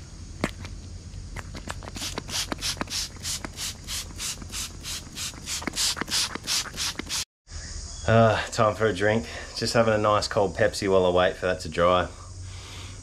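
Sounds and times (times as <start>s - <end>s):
spray bottle hissing spritzes: 1.9s - 7.2s.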